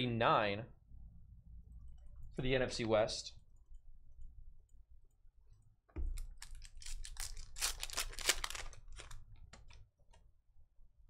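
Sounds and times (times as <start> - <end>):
foil wrapper crinkling and tearing: 6.3 - 9.7.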